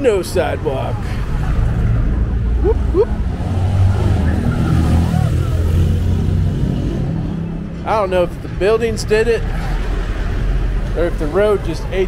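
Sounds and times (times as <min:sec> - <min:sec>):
car engines rumbling: 0:00.0 - 0:12.0
motorcycle passing: 0:01.3 - 0:07.8.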